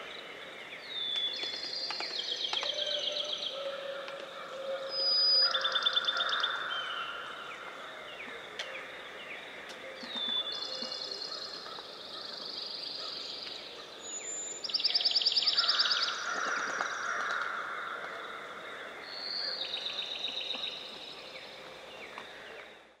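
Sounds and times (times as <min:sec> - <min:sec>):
songbirds trilling and whistling: 0:00.0 - 0:23.0.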